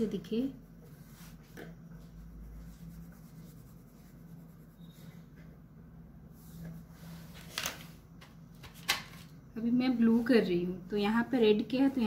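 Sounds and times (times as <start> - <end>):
low steady hum: 0.0 - 12.0
pencil scratching on paper: 0.8 - 5.2.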